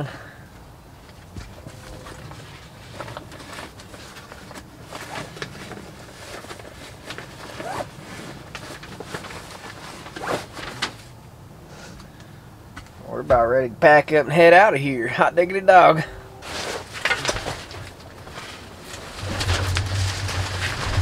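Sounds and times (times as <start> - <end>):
gear rustling: 1.3 - 11.1, 16.4 - 21.0
zipper being pulled: 7.5 - 8.3.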